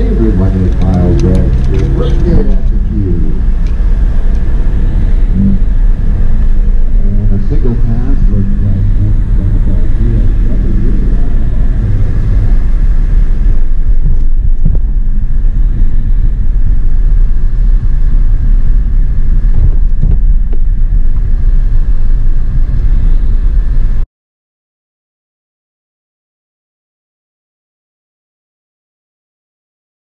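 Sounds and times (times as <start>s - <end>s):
car engine and tyres rumbling: 0.0s - 24.0s.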